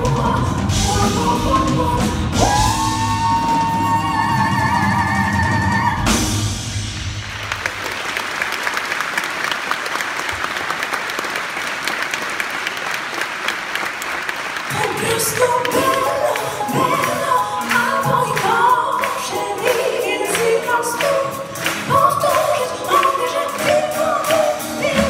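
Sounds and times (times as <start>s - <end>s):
live band playing: 0.0s - 8.5s, 14.6s - 25.0s
audience applause: 6.8s - 25.0s.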